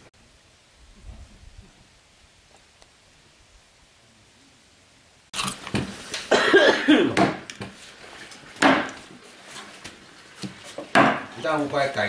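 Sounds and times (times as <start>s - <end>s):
sharp knocks: 7.1s - 7.5s, 8.6s - 9.0s, 10.9s - 11.3s.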